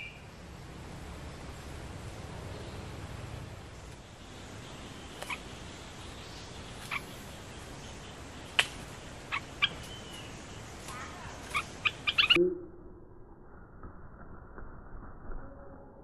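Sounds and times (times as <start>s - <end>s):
bird call notes: 0.0s - 0.3s, 3.9s - 12.4s
forest background hiss: 0.0s - 12.4s.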